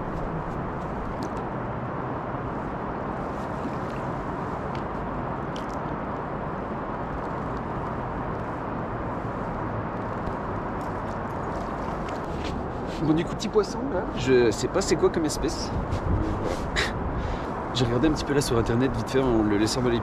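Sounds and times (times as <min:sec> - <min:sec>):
flowing river water: 0:02.6 - 0:08.0, 0:08.7 - 0:14.9.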